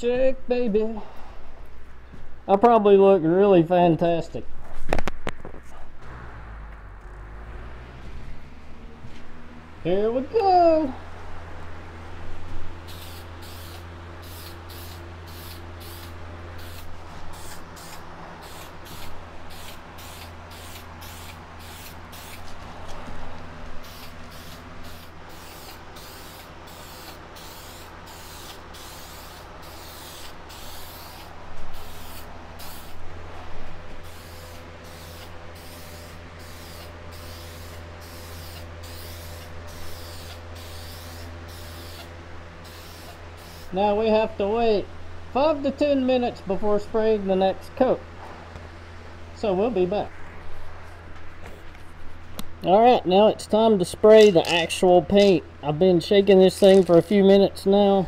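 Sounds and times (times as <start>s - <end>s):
box fan humming: 0.0s - 58.0s
aerosol spray can hissing: 12.9s - 22.4s, 23.8s - 33.0s, 34.0s - 43.7s.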